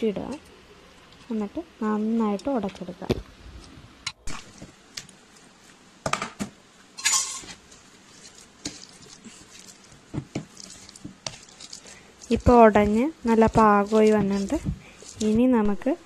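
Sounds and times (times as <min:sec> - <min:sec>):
masher mashing boiled cassava: 0:07.4 - 0:16.0.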